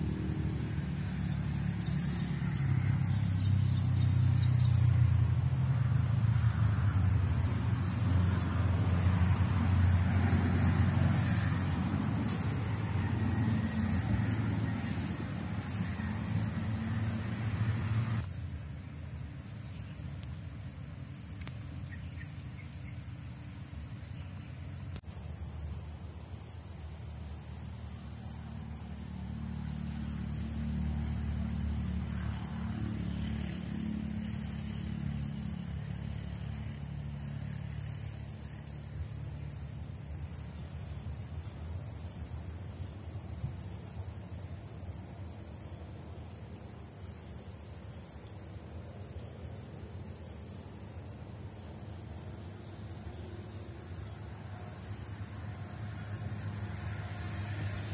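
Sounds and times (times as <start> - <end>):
high-pitched insect buzz: 0.0 - 43.2.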